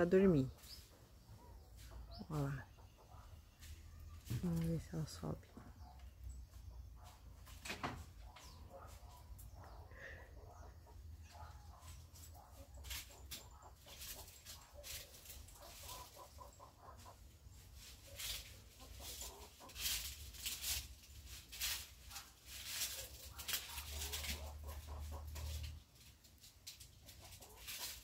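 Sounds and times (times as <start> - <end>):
hen clucking: 0.0 - 7.5, 8.1 - 20.5, 23.0 - 26.0, 26.9 - 28.0
clicks and rustles: 17.8 - 28.0.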